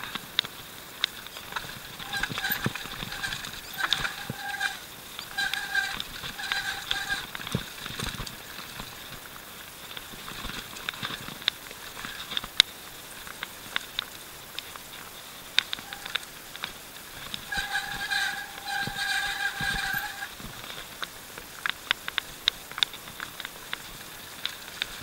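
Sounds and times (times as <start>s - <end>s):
bike rattling on dirt trail: 0.0s - 25.0s
disc brakes squealing: 1.4s - 7.9s, 15.8s - 20.4s.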